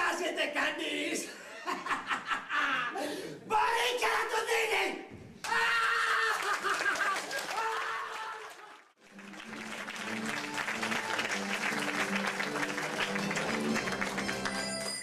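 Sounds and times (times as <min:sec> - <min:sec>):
audience applauding: 0:05.4 - 0:15.0
music with long held notes: 0:09.0 - 0:15.0.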